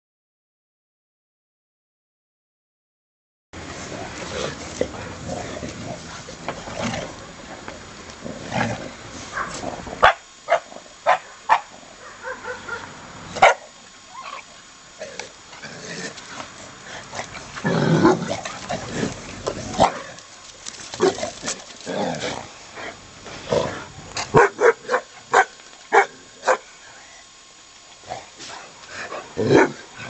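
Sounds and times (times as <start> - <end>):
dogs barking: 9.3 - 14.4, 24.3 - 26.7
dogs scuffling: 18.4 - 22.3.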